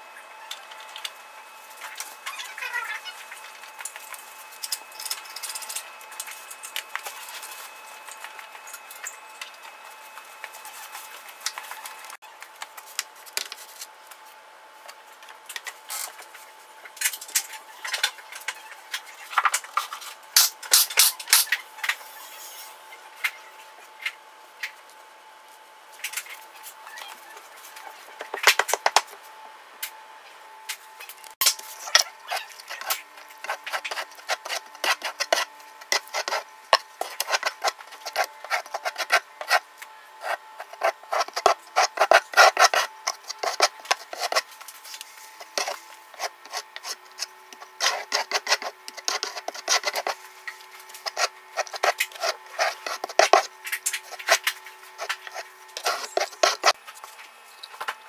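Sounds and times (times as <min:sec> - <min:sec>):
trowel scraping mortar on wall: 0:51.0 - 0:56.8.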